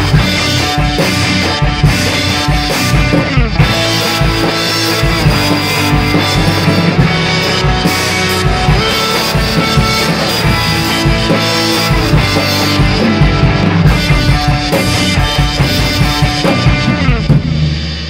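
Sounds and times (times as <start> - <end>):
drum kit played hard: 0.0 - 18.0
rock backing track: 0.0 - 18.0.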